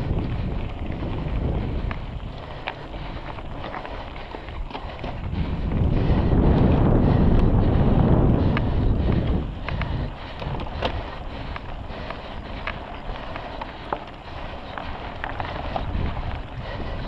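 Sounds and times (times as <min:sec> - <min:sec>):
bike clicks and rattles: 0:00.0 - 0:17.0
bike tyres rolling: 0:00.0 - 0:17.0
wind rushing over microphone: 0:00.0 - 0:17.0.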